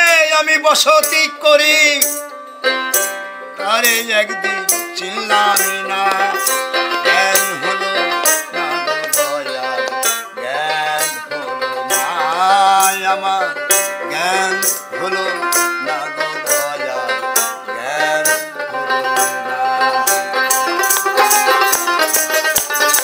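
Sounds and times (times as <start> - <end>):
plucked lute melody: 1.0 - 23.0
shaken rattle beat: 4.7 - 10.4, 11.9 - 12.2, 12.8 - 13.1, 13.7 - 23.0.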